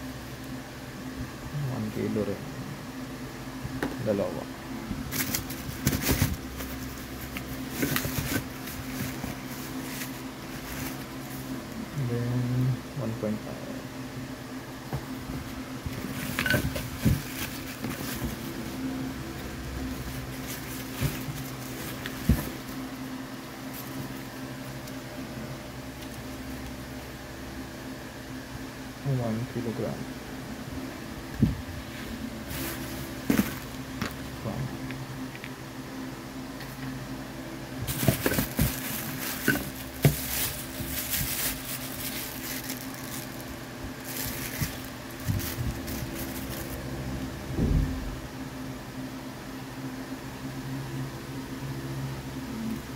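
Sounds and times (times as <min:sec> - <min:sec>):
plastic packaging crinkling: 0:05.1 - 0:11.5, 0:16.0 - 0:18.7, 0:19.9 - 0:22.9, 0:37.8 - 0:46.8
pieces knocking inside a box: 0:37.9 - 0:41.5.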